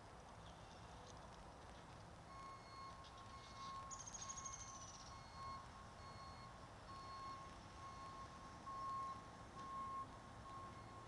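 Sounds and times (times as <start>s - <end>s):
faint electronic beeping: 2.3s - 11.0s.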